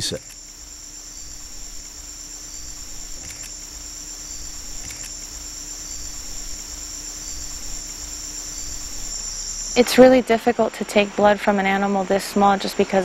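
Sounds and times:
faint low hum: 0:00.0 - 0:13.0
insects chirring: 0:00.0 - 0:13.0
faint double clicks: 0:03.2 - 0:03.6, 0:04.8 - 0:05.2.

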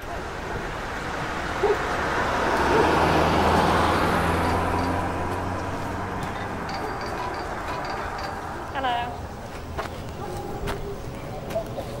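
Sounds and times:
vehicle passing by: 0:00.2 - 0:09.4.

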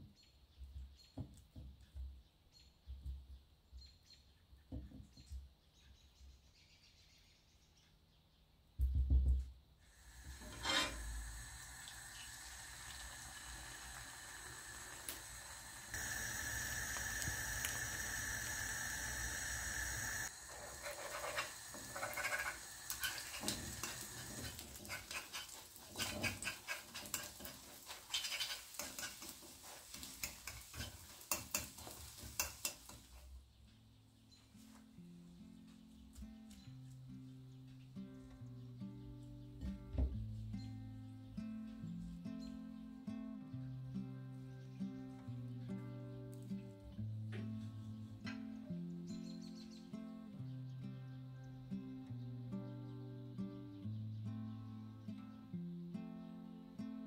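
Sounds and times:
egg sizzling in oil: 0:09.9 - 0:33.2
fork scraping and tapping a pan: 0:10.4 - 0:11.2, 0:20.6 - 0:33.2.

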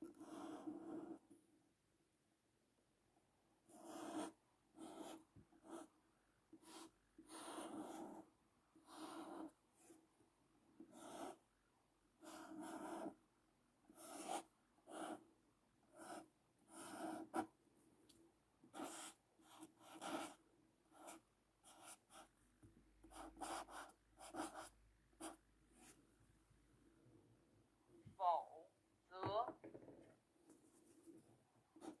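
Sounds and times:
felt-tip pen scratching paper: 0:00.0 - 0:01.3, 0:03.7 - 0:10.0, 0:10.8 - 0:11.4, 0:12.2 - 0:13.2, 0:13.9 - 0:17.5, 0:18.6 - 0:22.3, 0:23.0 - 0:26.0, 0:31.8 - 0:32.0.

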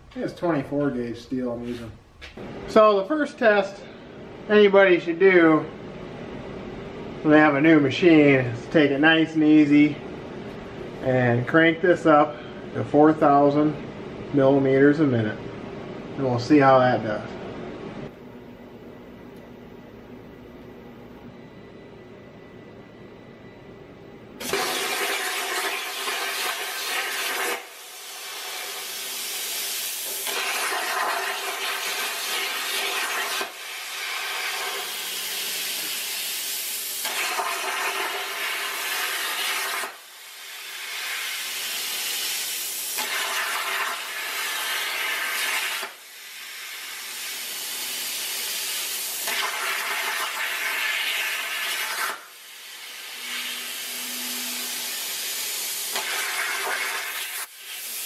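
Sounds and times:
plasma cutter arc hissing: 0:24.4 - 0:58.0.

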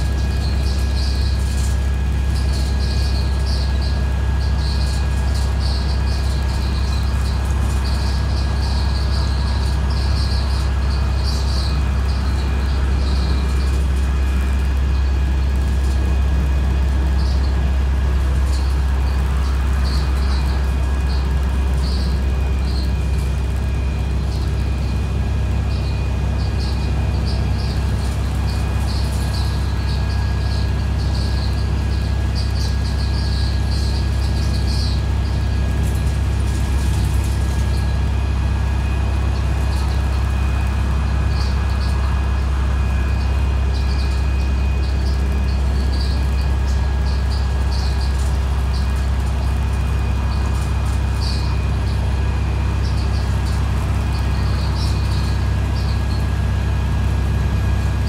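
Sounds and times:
bus diesel engine drone: 0:00.0 - 0:58.0.

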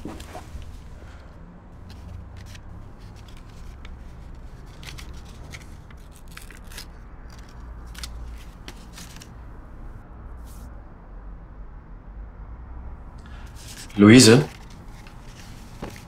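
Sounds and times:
soft clicks and rustles: 0:13.5 - 0:16.0.

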